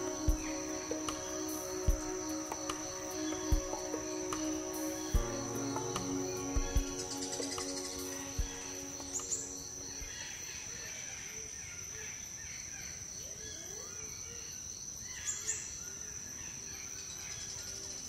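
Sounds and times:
soft background music: 0.0s - 10.9s
high-pitched insect drone: 0.0s - 11.2s.

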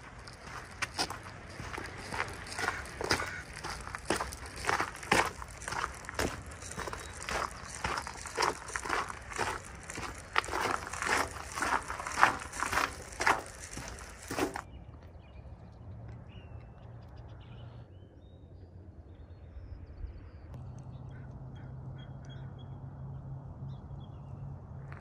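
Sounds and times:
footsteps crunching on gritty concrete: 0.0s - 14.7s
faint bird calls: 2.6s - 3.6s.

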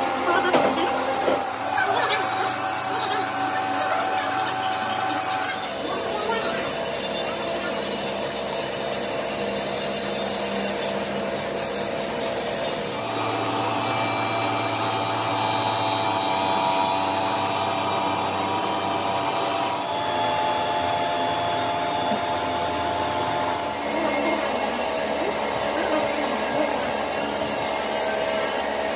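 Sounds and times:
power tool working metal: 0.0s - 28.9s
steady whining tones: 0.0s - 28.9s.

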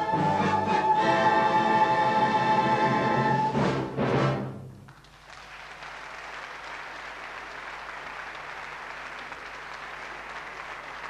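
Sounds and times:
orchestra and choir chord: 0.0s - 4.4s
audience applause: 4.9s - 11.0s.

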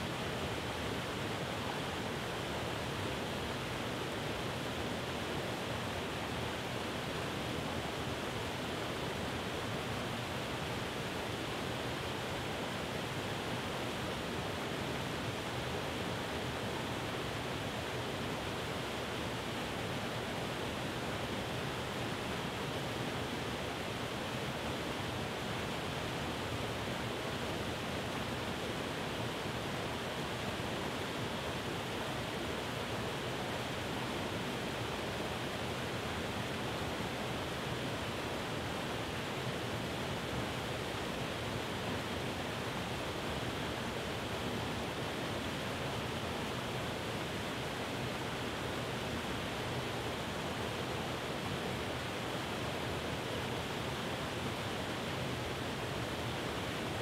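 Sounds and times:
waterfall rushing over rock: 0.0s - 57.0s.

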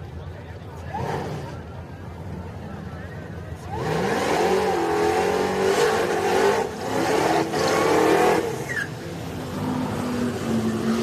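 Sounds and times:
engine revving high: 3.7s - 8.9s.

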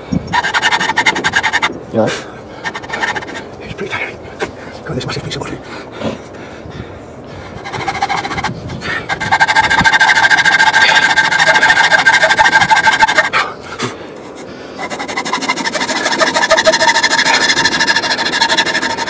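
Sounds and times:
hand saw rasping wood: 0.3s - 1.7s, 2.6s - 3.4s, 7.5s - 13.3s, 14.8s - 19.0s.

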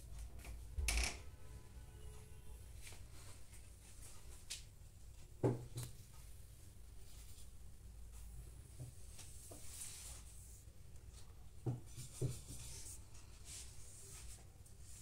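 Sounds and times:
paintbrush rubbing on paper: 9.3s - 10.7s, 11.9s - 15.0s.

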